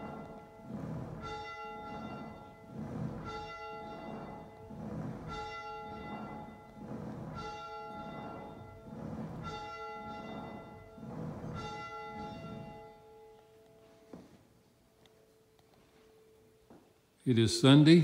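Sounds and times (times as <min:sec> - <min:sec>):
church bell tolling: 0:00.0 - 0:14.1.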